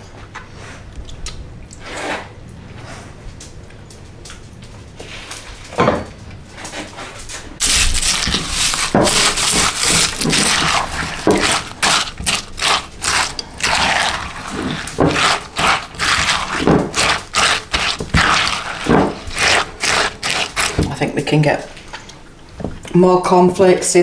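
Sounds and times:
cornflakes crunching and rustling: 7.6s - 21.0s
spatula scraping ceramic bowl: 7.6s - 21.4s.

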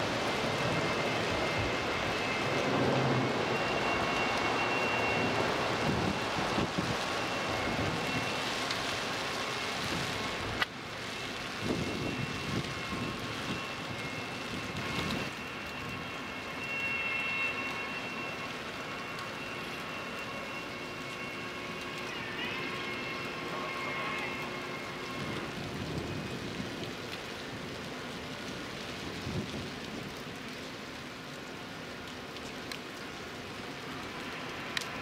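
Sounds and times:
faint high whine: 0.0s - 10.0s, 11.0s - 26.4s
ship passing with rushing noise: 0.0s - 10.6s.

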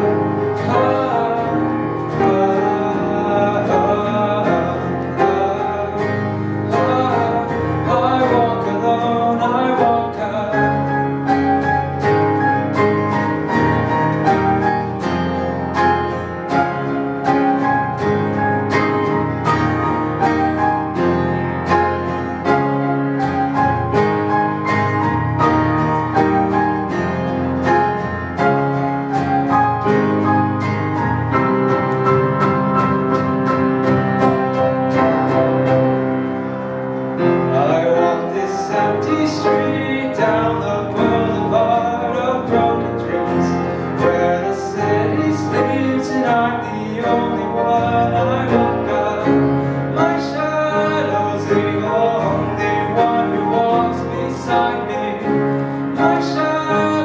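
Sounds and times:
man singing: 0.0s - 12.0s, 37.2s - 57.0s
acoustic guitar strumming: 0.0s - 57.0s
grand piano chords: 0.0s - 57.0s.

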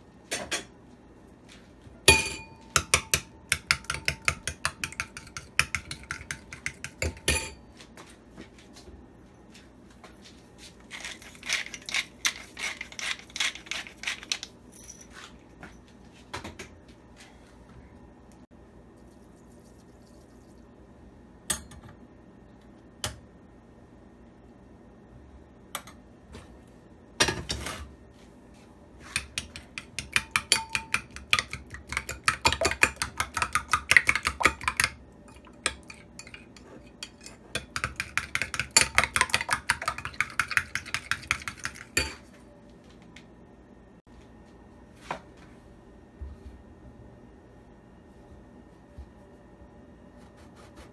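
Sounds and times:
metal spoon clinking in ceramic bowl: 2.1s - 7.6s, 29.5s - 42.2s.

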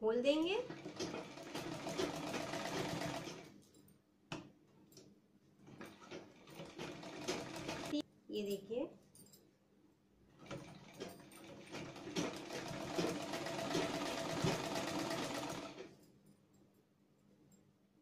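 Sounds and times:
sewing machine stitching: 0.6s - 3.5s, 5.8s - 8.0s, 10.4s - 15.9s.

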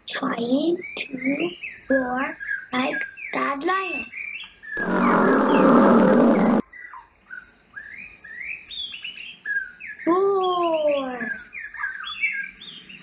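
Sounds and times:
big cat roaring: 4.8s - 6.6s.

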